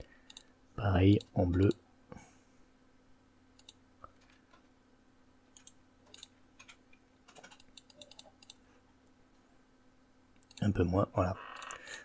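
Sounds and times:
faint steady hum: 0.0s - 12.0s
keyboard and mouse clicks: 0.3s - 0.5s, 3.6s - 4.6s, 5.5s - 8.6s, 10.4s - 10.7s.

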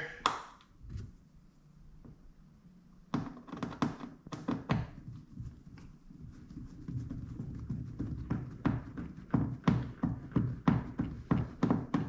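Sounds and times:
sharp knocks and taps: 3.1s - 12.0s.

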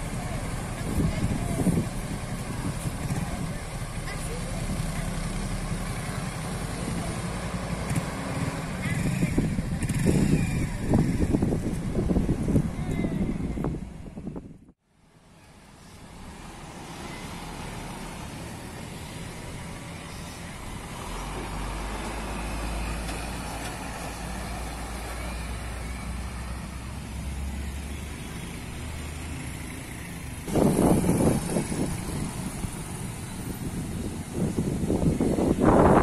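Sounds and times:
wind buffeting microphone: 0.0s - 4.0s, 7.8s - 14.8s, 30.4s - 36.0s
trucks passing on road: 0.0s - 36.0s.

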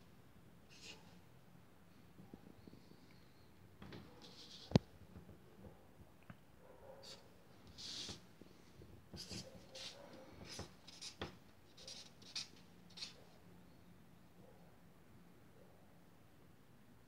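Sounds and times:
marker pen scratching on paper: 0.7s - 1.1s, 4.1s - 4.8s, 7.0s - 8.2s, 9.1s - 13.3s.

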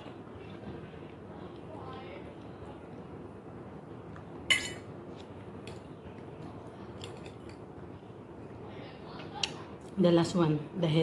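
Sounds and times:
fork clinking against metal pot: 4.5s - 4.8s.

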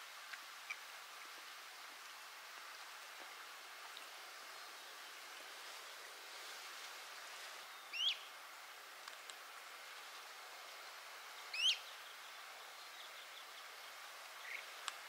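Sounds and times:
faint outdoor hiss: 0.0s - 15.0s
small bird calling: 7.6s - 8.4s, 11.3s - 14.8s.

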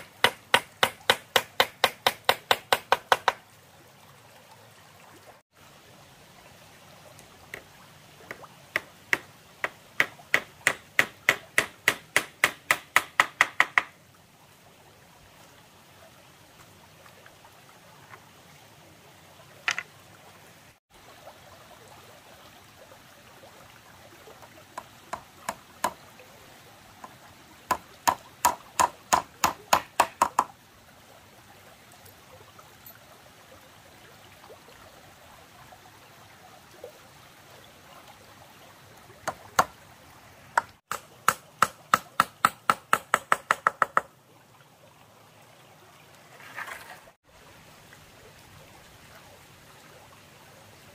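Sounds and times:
stone knocking on bamboo: 0.0s - 3.4s, 8.8s - 13.9s, 27.7s - 30.5s, 40.6s - 44.1s.

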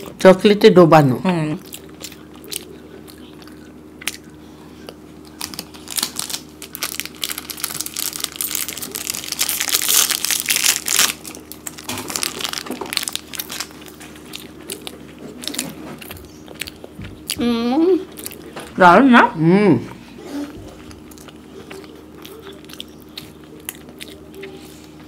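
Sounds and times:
plastic wrappers crinkling and tearing: 5.2s - 16.3s.

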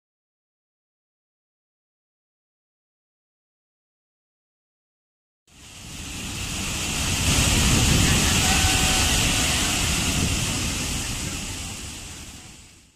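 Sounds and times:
waterfall rushing: 5.5s - 12.9s.

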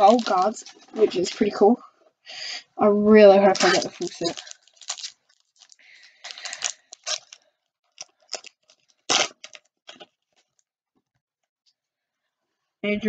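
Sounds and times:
trading cards rustling: 0.0s - 1.7s, 3.5s - 10.5s.

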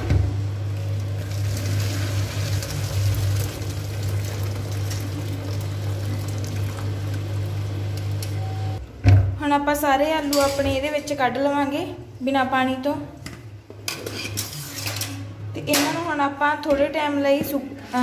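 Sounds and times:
hot water splashing and pouring: 0.8s - 8.2s.

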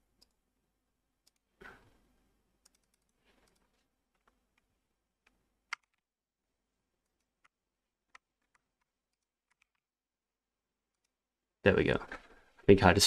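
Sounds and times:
keyboard and mouse clicks: 1.2s - 1.8s, 2.6s - 6.0s, 7.0s - 9.8s.

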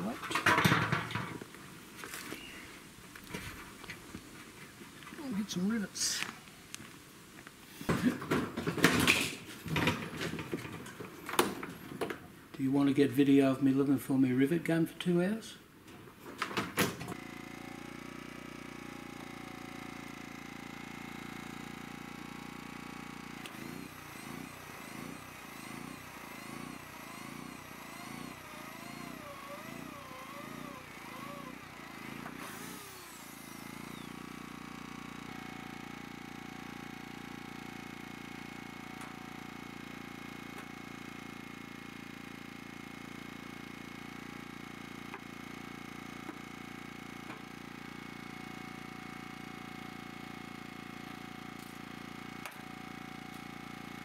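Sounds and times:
portable generator running: 16.9s - 54.0s
electric drill whining through metal: 17.0s - 54.0s.

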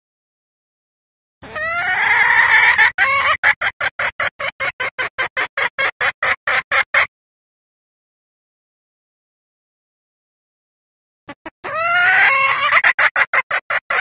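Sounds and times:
hen junglefowl rising call: 1.4s - 3.5s, 11.3s - 14.0s
hen junglefowl clucks: 1.4s - 7.1s, 11.3s - 14.0s.

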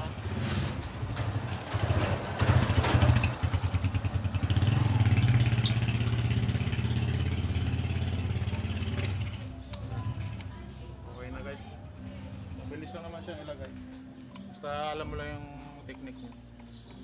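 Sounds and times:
vehicle engine running: 0.0s - 13.1s.

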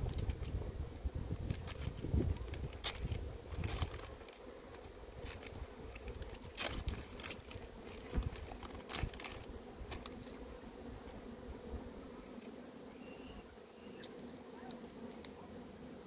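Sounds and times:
honeybees buzzing: 0.0s - 16.0s
plastic packet crinkling: 1.4s - 10.2s.

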